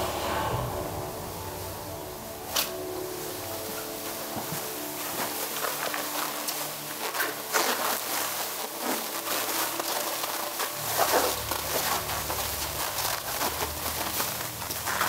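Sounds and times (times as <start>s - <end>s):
low steady hum: 0.0s - 6.8s
plastic film rustling and crinkling: 1.1s - 15.0s.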